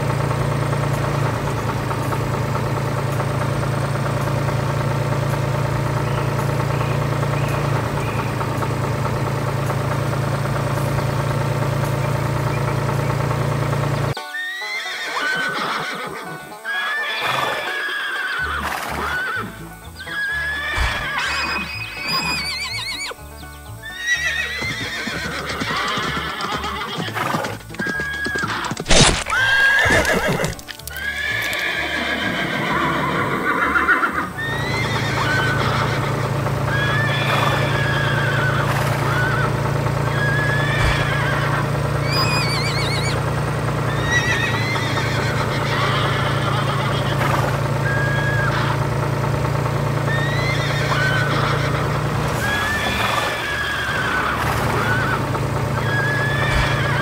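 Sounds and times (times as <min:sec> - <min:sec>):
tractor engine hum: 0:00.0 - 0:57.0
background music: 0:14.1 - 0:39.4
horses neighing: 0:14.1 - 0:57.0.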